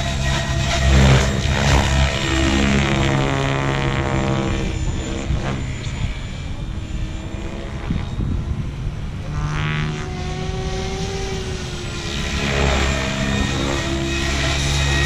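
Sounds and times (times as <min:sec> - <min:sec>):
model helicopter rotor hum: 0:00.0 - 0:15.0.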